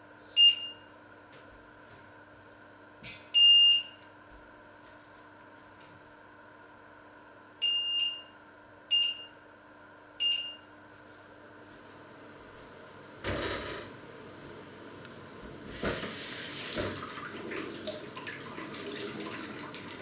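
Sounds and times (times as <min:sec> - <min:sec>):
cooktop touch control beeps: 0:00.4 - 0:00.9, 0:03.4 - 0:04.1, 0:07.6 - 0:09.4, 0:10.2 - 0:10.7.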